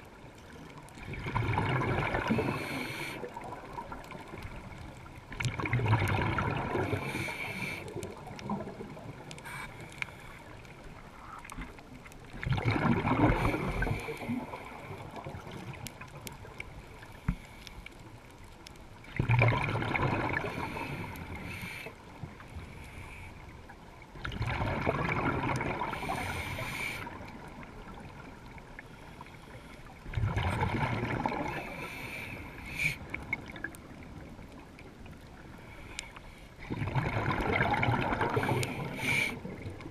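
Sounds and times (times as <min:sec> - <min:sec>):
regulator hiss: 0:38.7 - 0:39.4.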